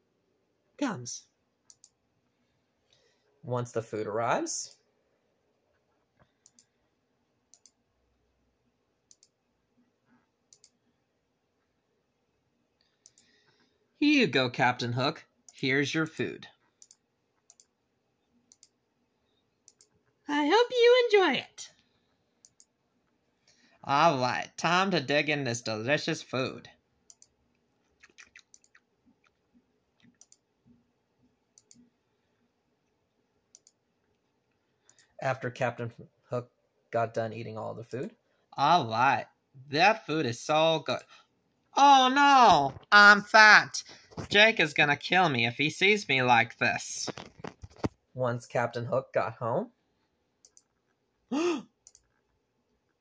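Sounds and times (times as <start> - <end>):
computer mouse clicks: 1.7 - 2.0, 6.2 - 6.8, 7.5 - 7.8, 9.1 - 9.4, 10.5 - 10.8, 12.8 - 13.7, 16.7 - 17.8, 18.5 - 18.8, 19.6 - 20.1, 22.4 - 22.8, 27.1 - 29.4, 30.0 - 30.5, 31.6 - 31.9, 33.5 - 33.8, 34.8 - 35.2, 50.4 - 51.0, 51.8 - 52.4.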